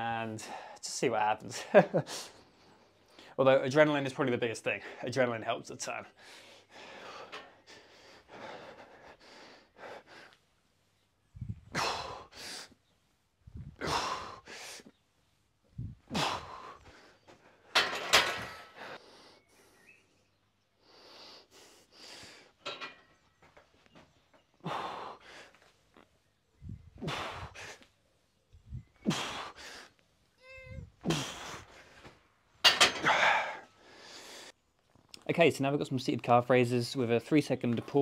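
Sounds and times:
man breathing hard: 6.2s - 10.8s, 11.6s - 12.8s, 13.6s - 15.0s, 15.8s - 17.8s, 18.4s - 20.2s, 20.8s - 22.6s, 24.6s - 25.8s, 26.6s - 28.0s, 28.7s - 30.0s, 31.0s - 32.2s, 33.0s - 34.6s.

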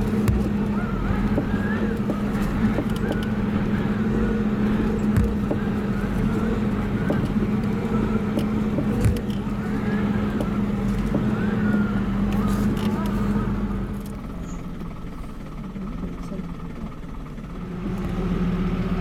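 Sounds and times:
knocks and rattles from bumps: 0.0s - 13.2s
vehicle engine and road hum: 0.0s - 19.0s.

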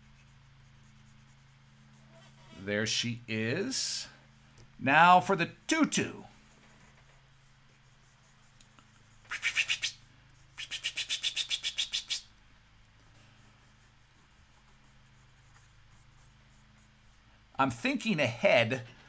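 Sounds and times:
stylus scratching on tablet: 0.0s - 2.7s, 6.4s - 12.0s, 13.3s - 17.3s
faint low hum: 0.0s - 19.0s.

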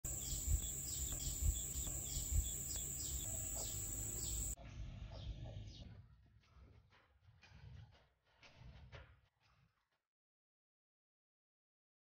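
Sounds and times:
insect chirps: 0.0s - 4.6s
high-pitched insect drone: 0.1s - 4.6s
low thumps: 0.1s - 4.6s.

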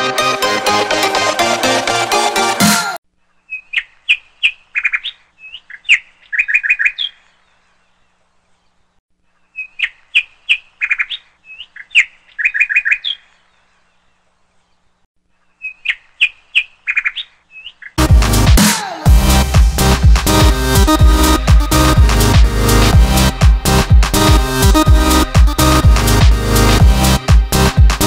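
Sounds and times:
small bird chirping: 3.2s - 18.0s.

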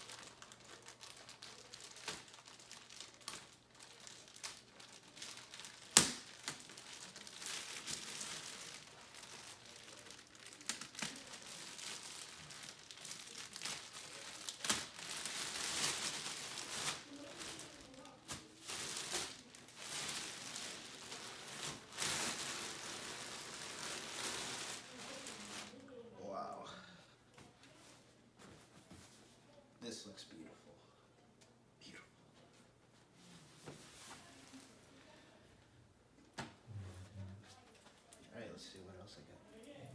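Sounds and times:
packaging crinkling and tearing: 0.0s - 25.8s.

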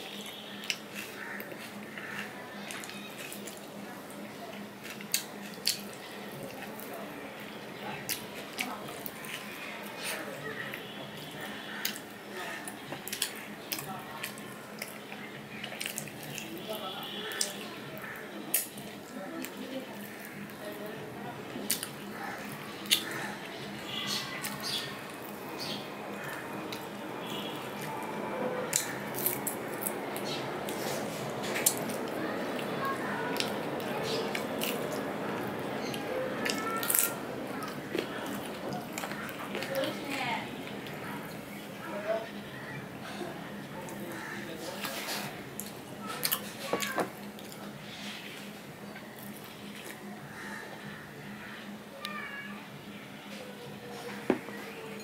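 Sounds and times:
wet chewing and lip smacks: 4.8s - 6.8s.

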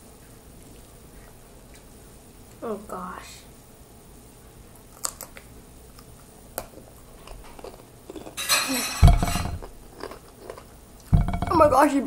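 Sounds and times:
chips crunching while chewing: 4.8s - 9.0s, 9.6s - 10.8s
heavy low thump: 9.0s - 9.8s, 11.2s - 11.8s.

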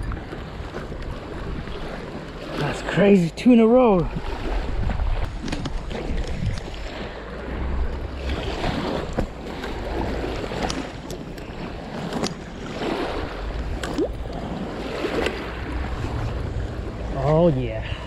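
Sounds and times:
small waves lapping on rocks: 0.0s - 18.0s
wind buffeting microphone: 3.9s - 18.0s.

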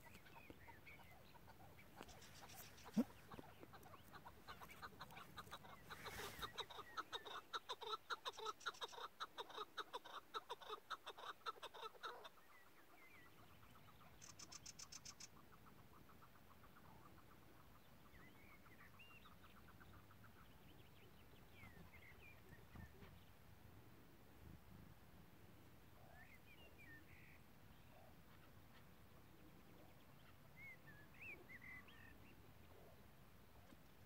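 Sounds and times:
partridge clucking call: 0.0s - 12.3s
faint small-bird chirps: 0.0s - 23.4s, 25.9s - 34.0s.

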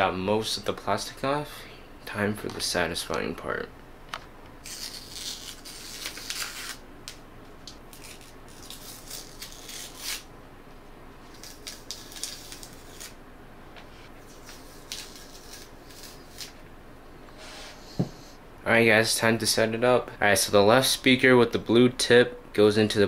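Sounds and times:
plastic film being peeled off: 4.6s - 6.8s, 7.9s - 10.3s, 11.3s - 13.2s, 14.3s - 16.6s.

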